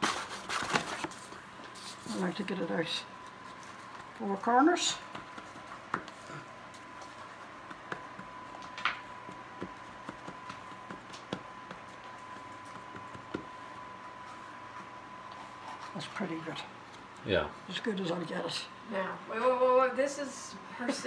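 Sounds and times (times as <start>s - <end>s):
hands patting dough in metal pan: 7.3s - 13.6s.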